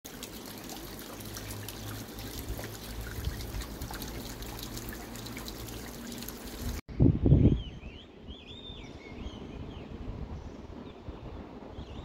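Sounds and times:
water dripping: 0:00.0 - 0:06.8
water trickling down rock: 0:00.0 - 0:06.8.

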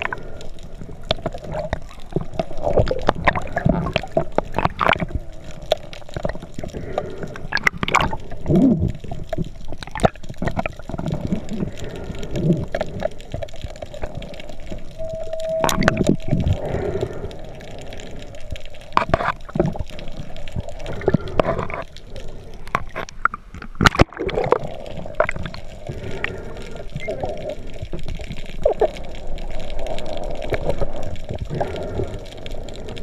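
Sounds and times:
water gurgling underwater: 0:00.0 - 0:33.0
steady hum: 0:14.8 - 0:18.4.

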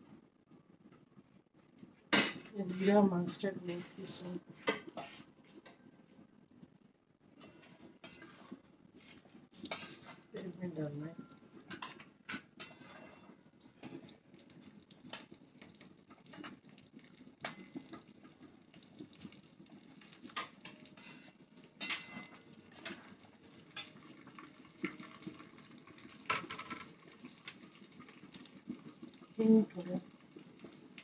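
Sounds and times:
seeds crackling in hot oil: 0:09.5 - 0:31.0.

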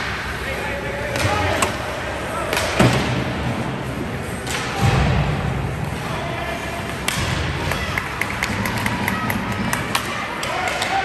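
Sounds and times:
rink background noise: 0:00.0 - 0:11.0
hockey stick clack: 0:06.9 - 0:11.0.

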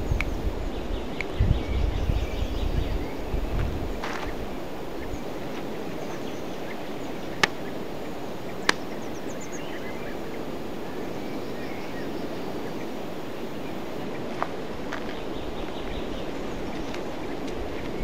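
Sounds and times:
faint bird chirps: 0:00.0 - 0:14.3
outdoor background noise: 0:00.0 - 0:18.0.

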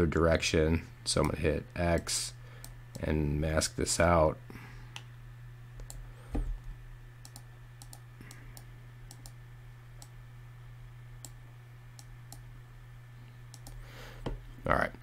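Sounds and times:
computer mouse clicks: 0:07.2 - 0:09.4, 0:13.5 - 0:13.8.

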